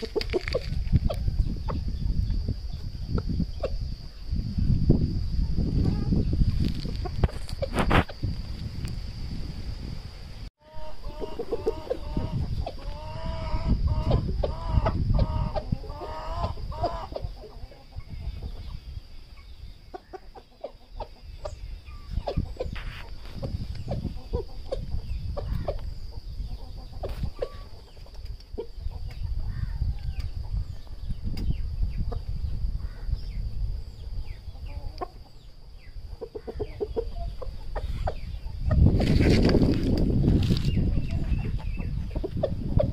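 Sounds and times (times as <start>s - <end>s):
rooster clucking: 10.6s - 18.6s.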